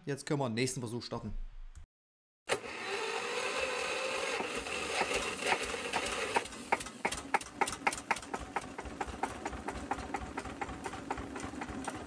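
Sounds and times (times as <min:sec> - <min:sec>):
diesel engine knocking: 0:06.4 - 0:12.0.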